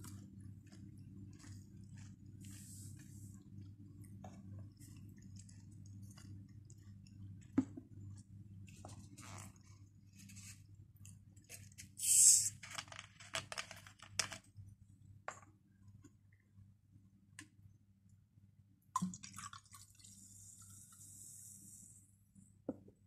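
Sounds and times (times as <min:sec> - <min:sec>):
gas hissing from bottle: 0:12.0 - 0:12.6
liquid pouring into metal cup: 0:19.0 - 0:20.9.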